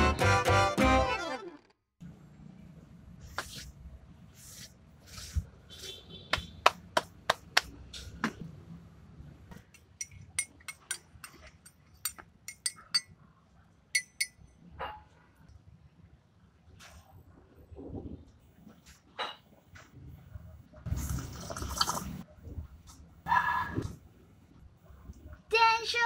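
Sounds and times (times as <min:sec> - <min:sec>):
metal spoon clinking in ceramic mug: 0:09.8 - 0:13.1, 0:14.0 - 0:14.4.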